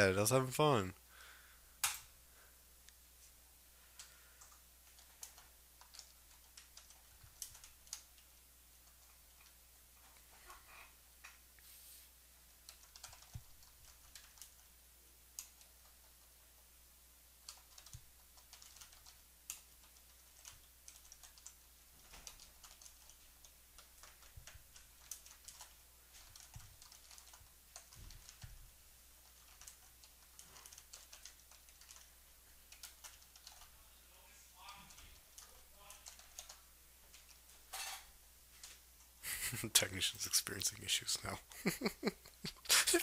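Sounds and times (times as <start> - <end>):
typing on computer keyboard: 4.0 - 10.1, 12.6 - 14.7, 15.3 - 16.4, 17.4 - 28.6, 29.2 - 33.8, 34.7 - 37.4.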